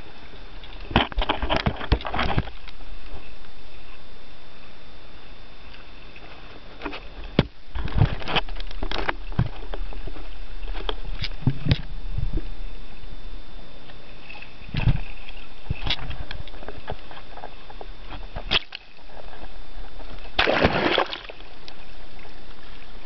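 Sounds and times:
low steady rumble: 0.0 - 23.0
water slapping against hull: 20.2 - 21.5.

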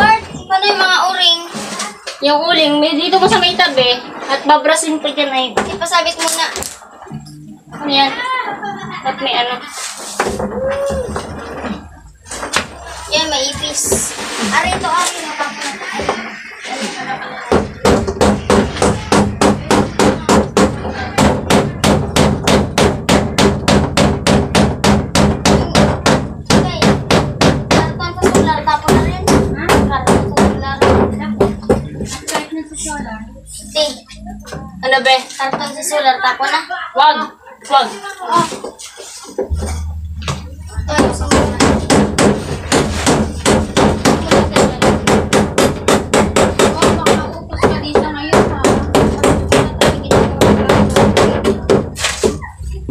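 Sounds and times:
rapid hammering of nails: 17.5 - 31.1, 41.0 - 52.0.

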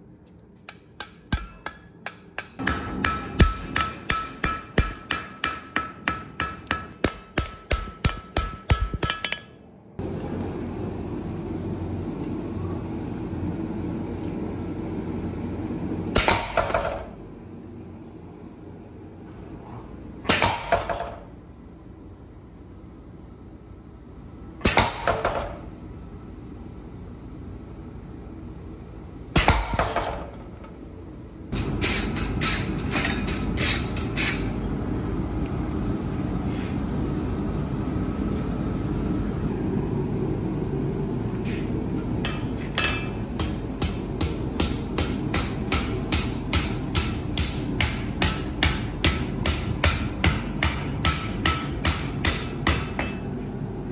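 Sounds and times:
hand hammer striking anvil: 0.7 - 9.6, 42.2 - 53.3.

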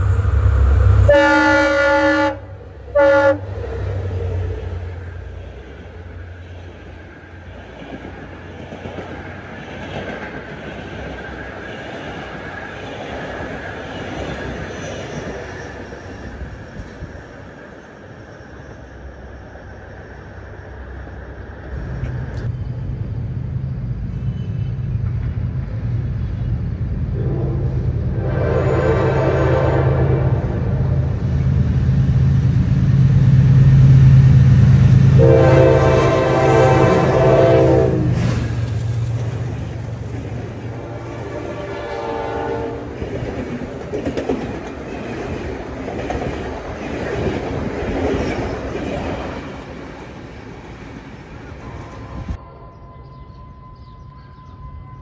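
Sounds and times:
locomotive engine drone: 0.0 - 55.0
train rumbling past: 0.0 - 55.0
locomotive horn blasts: 1.0 - 3.6, 27.2 - 30.6, 35.2 - 38.2, 40.8 - 43.0.

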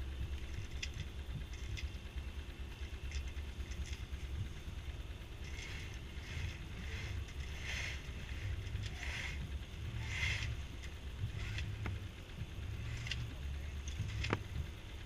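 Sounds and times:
wind rumble on microphone: 4.0 - 15.0
rope hauled in pulls: 5.4 - 11.9.

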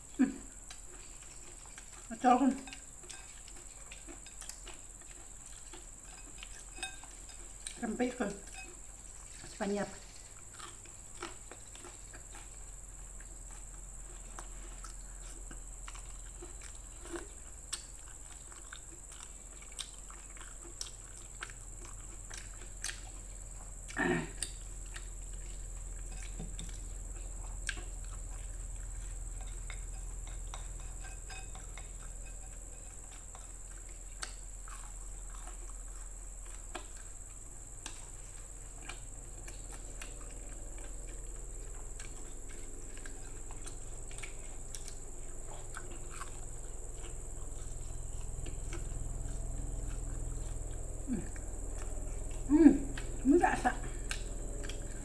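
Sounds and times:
faint high whine: 0.0 - 55.0
steady low hum: 0.0 - 55.0
wet chewing: 0.0 - 55.0
short vocal sound: 52.5 - 53.0.

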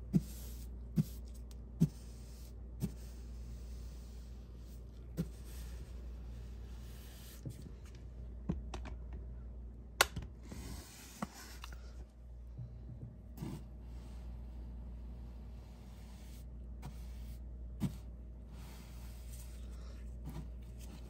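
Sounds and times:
paintbrush brushing on wall: 0.2 - 7.7, 13.3 - 21.0.

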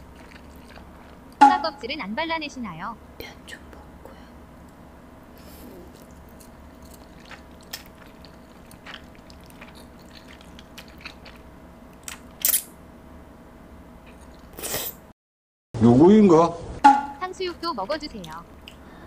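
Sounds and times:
chewing and slurping noodles: 0.0 - 1.4, 5.4 - 11.5.

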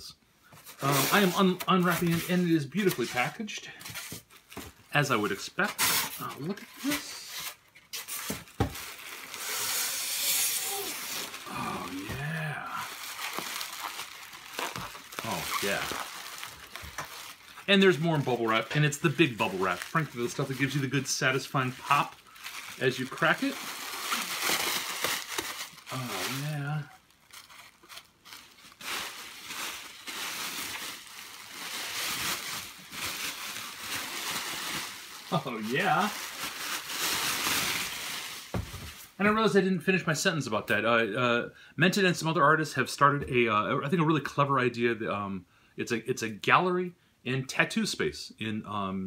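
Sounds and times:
bubble wrap crinkling: 0.6 - 3.4, 4.0 - 39.2
low vocal hum: 10.8 - 12.9.

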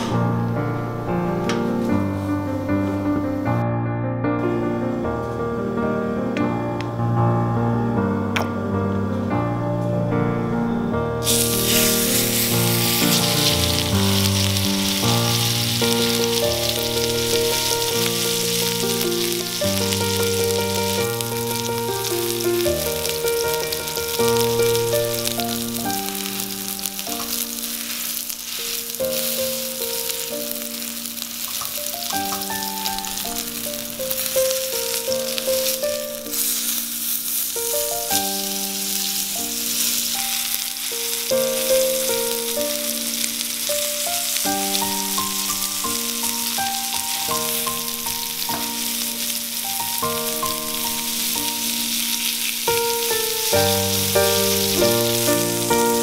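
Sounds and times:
soft background music: 4.4 - 56.0
steak sizzling in oil: 11.2 - 56.0.

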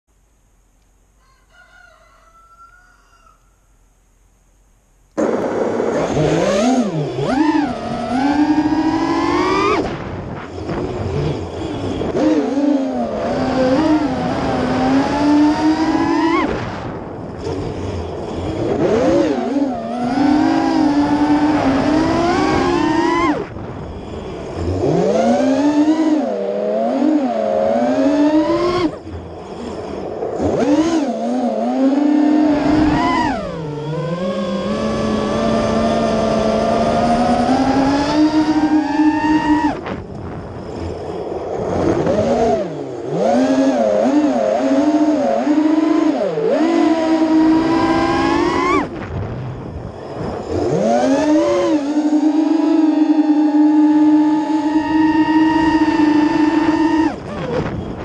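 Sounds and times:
quadcopter propellers whining: 5.2 - 58.0.

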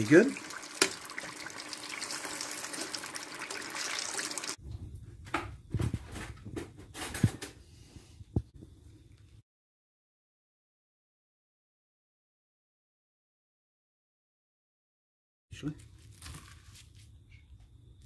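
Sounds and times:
hot oil sizzling: 0.0 - 4.6.

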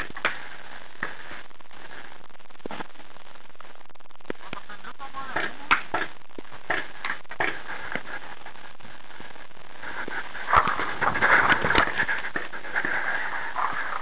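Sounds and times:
sharp pops: 0.0 - 4.7, 5.3 - 8.2.

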